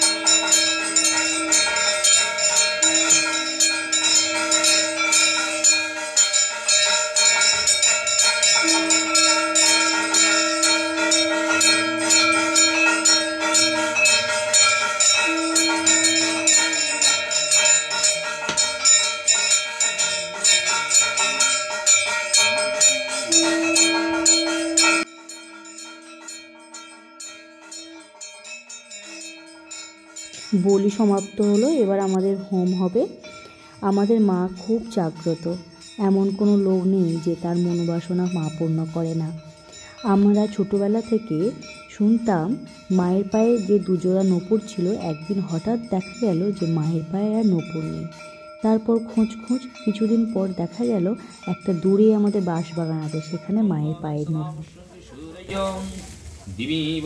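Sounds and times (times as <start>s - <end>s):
bells rung rapidly: 0.0s - 56.1s
horn-like tone blasts: 8.6s - 10.0s, 15.2s - 16.8s.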